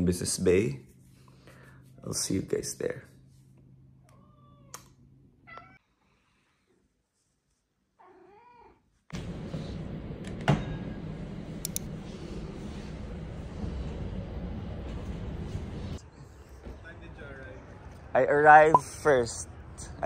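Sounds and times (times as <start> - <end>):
cat meowing: 4.0 - 5.8, 8.0 - 8.8.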